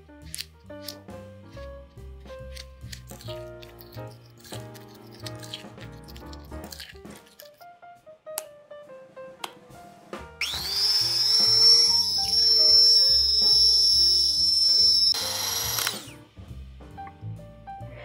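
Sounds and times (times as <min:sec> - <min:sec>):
electric hand mixer whining: 0:10.4 - 0:16.2.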